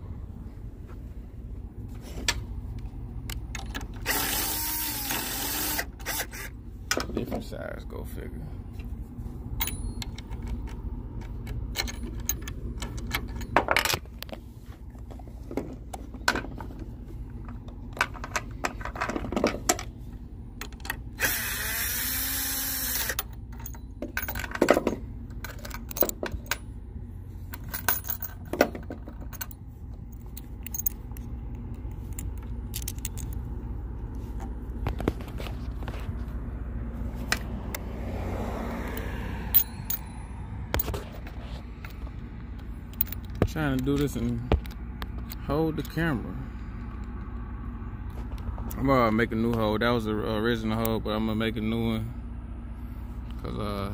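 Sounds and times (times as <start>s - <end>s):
steady low hum: 0.0s - 53.9s
power drill running: 4.0s - 6.5s, 21.2s - 23.2s
metal hardware clinking: 9.6s - 14.1s, 23.0s - 26.8s, 27.5s - 33.4s, 39.5s - 44.2s.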